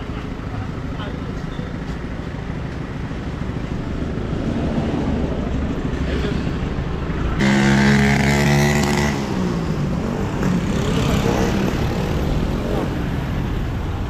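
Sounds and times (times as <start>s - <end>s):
street traffic rumbling: 0.0s - 14.0s
vehicle engine passing close: 3.0s - 14.0s.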